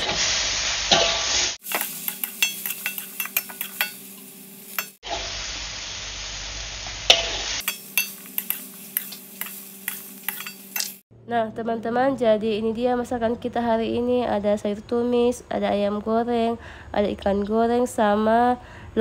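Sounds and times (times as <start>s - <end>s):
food sizzling in a wok: 0.0s - 11.1s
metal spatula scraping a pan: 0.9s - 5.3s, 7.1s - 11.0s.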